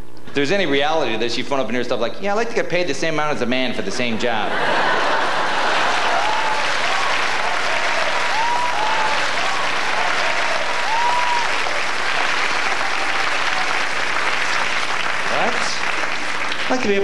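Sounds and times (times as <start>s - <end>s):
audience applauding: 4.6s - 17.0s.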